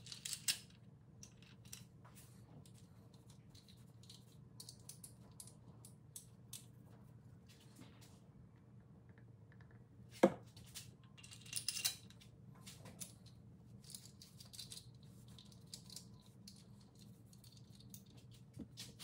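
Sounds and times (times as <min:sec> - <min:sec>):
small metal parts clicking and rattling: 0:00.0 - 0:01.9, 0:02.6 - 0:06.7, 0:11.1 - 0:12.2, 0:13.0 - 0:18.4.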